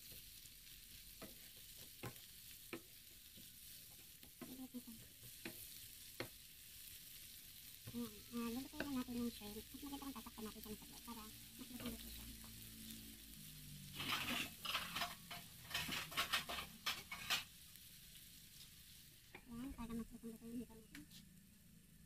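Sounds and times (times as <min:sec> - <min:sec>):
shrimp sizzling in a pan: 0:00.0 - 0:22.0
utensil clattering and scraping: 0:13.9 - 0:17.6.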